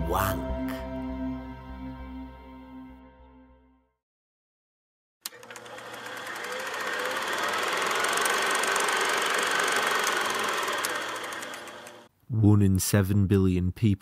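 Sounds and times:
film projector clattering: 0:05.3 - 0:12.1.

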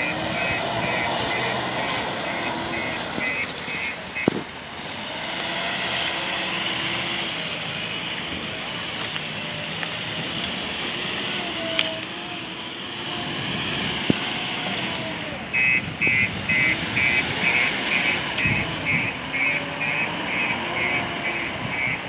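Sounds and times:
backhoe diesel engine under load: 0:00.0 - 0:22.0.

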